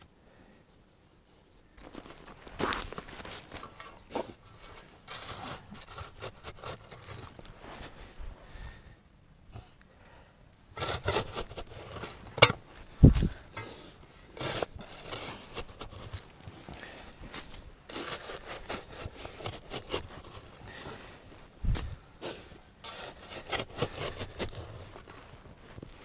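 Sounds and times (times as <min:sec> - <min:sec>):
shovel scraping into sandy soil: 0:02.6 - 0:08.0, 0:10.8 - 0:16.2, 0:17.2 - 0:25.2.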